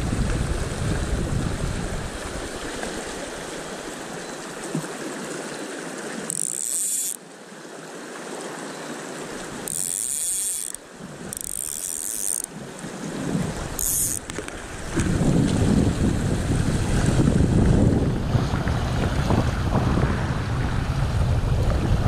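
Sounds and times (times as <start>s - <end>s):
wind buffeting microphone: 0.0s - 3.4s, 12.6s - 22.0s
fishing line hissing zips: 6.3s - 7.2s, 9.4s - 12.6s, 13.7s - 14.3s.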